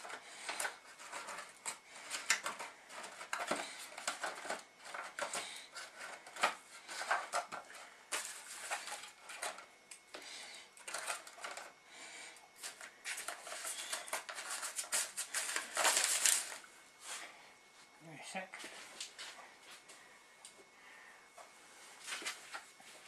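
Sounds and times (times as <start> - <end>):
foil trays crinkling: 0.0 - 11.8, 12.6 - 16.7.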